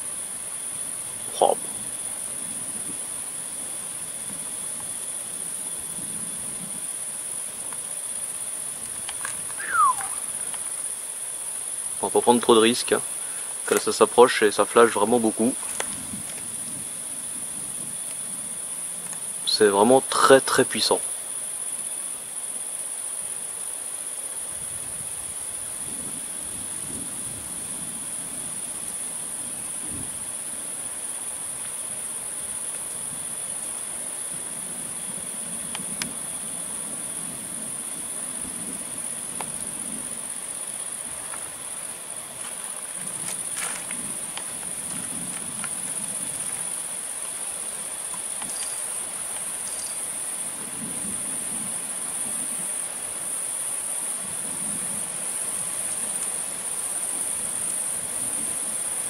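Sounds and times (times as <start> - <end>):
crickets chirring: 0.0 - 59.0
faint clicks: 13.7 - 13.9.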